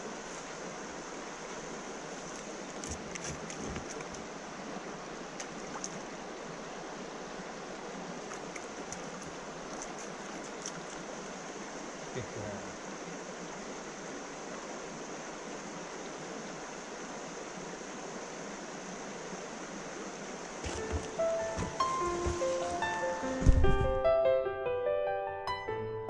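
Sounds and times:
small splashes and trickles: 0.0 - 22.8
river rushing over rocks: 0.0 - 23.8
soft low thump: 20.6 - 22.8, 23.4 - 24.0.

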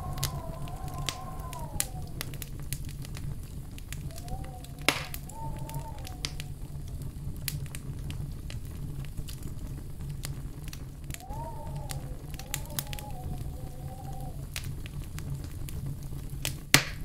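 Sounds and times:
logs crackling and popping: 0.0 - 17.0
low rumble of flames: 0.0 - 17.0
soft whistle-like tone: 4.0 - 6.9, 11.2 - 14.4.

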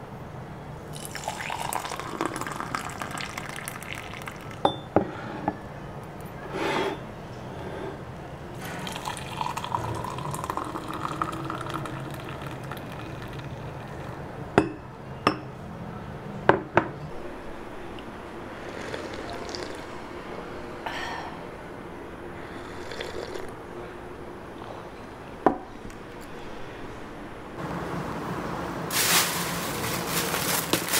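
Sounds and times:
liquid pouring into glass: 0.9 - 4.9, 8.6 - 14.2.

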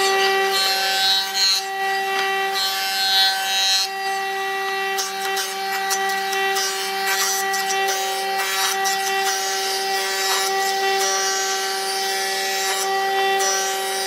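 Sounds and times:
jointer running: 0.0 - 14.0
knives shaving wood: 4.8 - 14.0.

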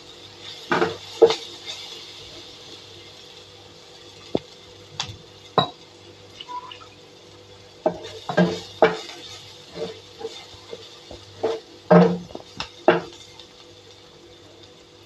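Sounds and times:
spatula scraping frying pan: 7.9 - 13.1.

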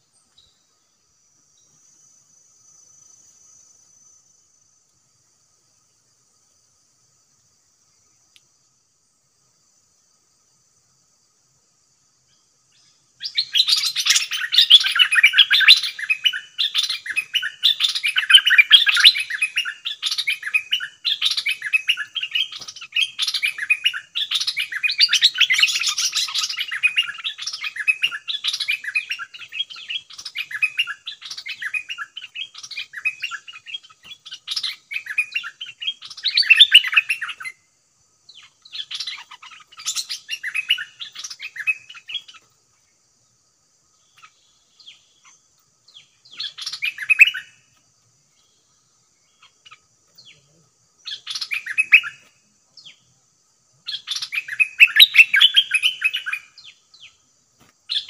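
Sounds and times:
birds harsh chattering calls: 13.2 - 37.5, 38.3 - 42.5, 44.1 - 47.5, 51.1 - 52.3.

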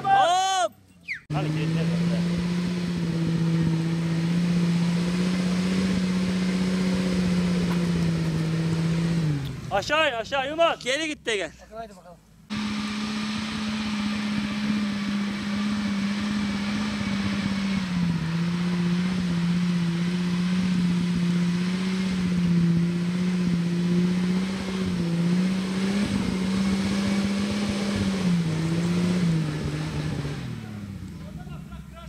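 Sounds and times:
engine running hard under load: 12.5 - 31.1.

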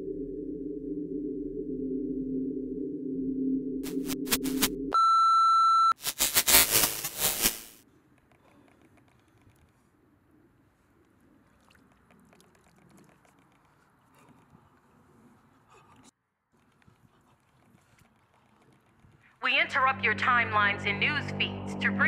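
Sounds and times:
low electronic drone: 0.0 - 4.9, 19.9 - 22.0
crackling digital static: 3.8 - 4.7, 6.0 - 7.8.

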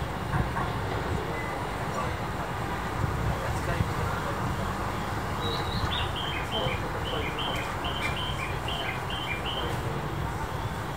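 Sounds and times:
station background rumble: 0.0 - 10.9
bird-like chirps: 5.4 - 9.8.

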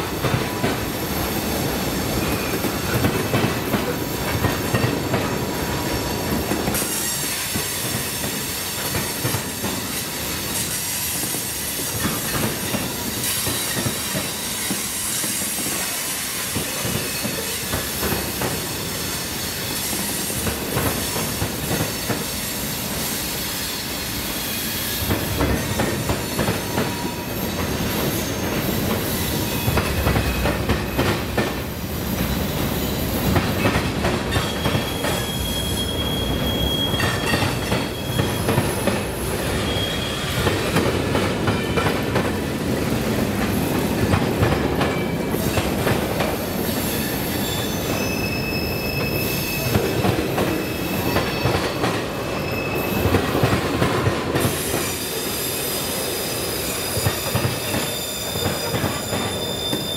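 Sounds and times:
high-pitched wheel squeal: 34.3 - 40.4, 46.7 - 53.2, 54.8 - 59.9.

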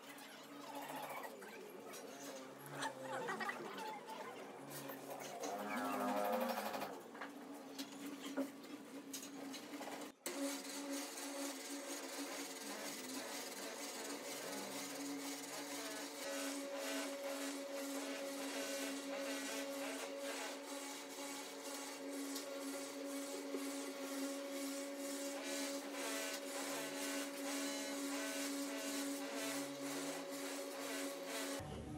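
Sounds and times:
electric motor humming: 10.3 - 31.6.

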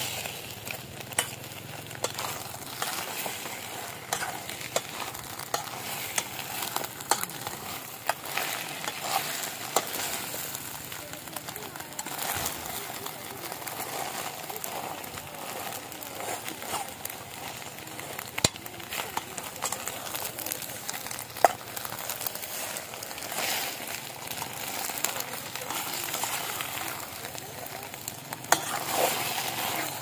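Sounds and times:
eggs sizzling in pot: 0.0 - 30.0
metal spoon scraping pot: 1.1 - 10.6, 28.4 - 30.0.

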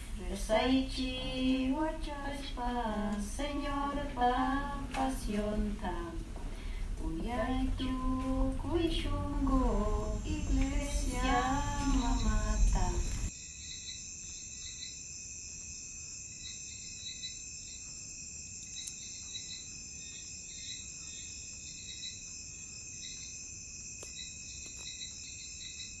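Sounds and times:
insect chirps: 0.4 - 26.0
insect trill: 6.7 - 26.0.

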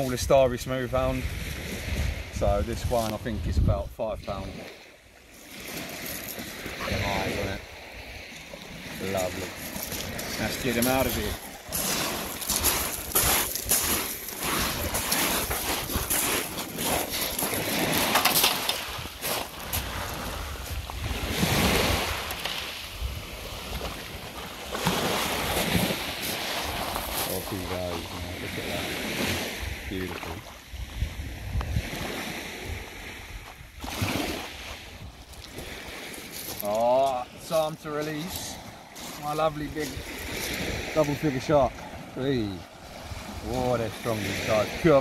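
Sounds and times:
wind buffeting microphone: 0.9 - 4.6, 6.5 - 36.0
shallow sea water washing: 4.3 - 33.2, 33.8 - 45.0
small waves breaking on shingle: 4.5 - 29.6, 33.8 - 41.8
footsteps crunching on shingle: 9.4 - 20.0, 36.0 - 37.2.

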